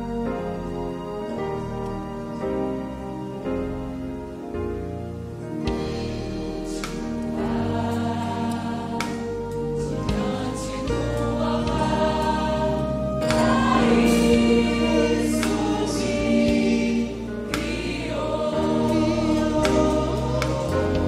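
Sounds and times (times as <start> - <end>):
live band and strings: 0.0 - 21.0
choir singing gospel: 5.6 - 21.0
percussion hits: 5.7 - 21.0.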